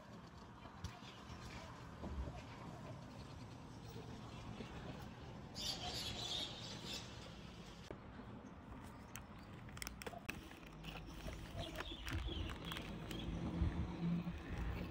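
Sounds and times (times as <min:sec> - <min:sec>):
plastic snack wrapper rustling: 0:09.2 - 0:13.5
wrapper crackling: 0:09.6 - 0:13.6.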